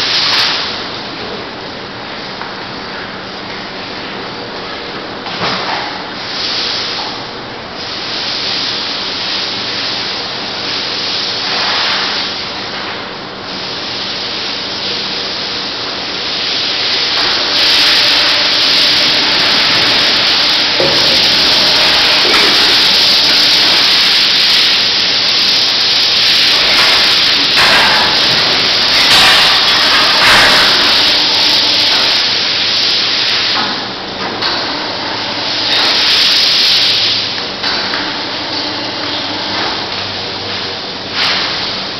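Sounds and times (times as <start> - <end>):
powered knives hissing: 16.9 - 32.7.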